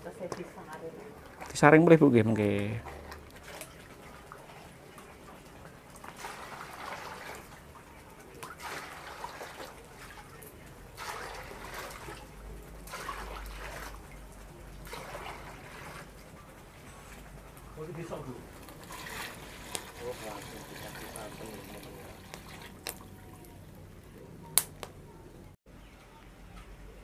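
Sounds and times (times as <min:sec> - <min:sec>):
liquid pouring and splashing into basin: 0:02.4 - 0:16.4, 0:18.1 - 0:23.6.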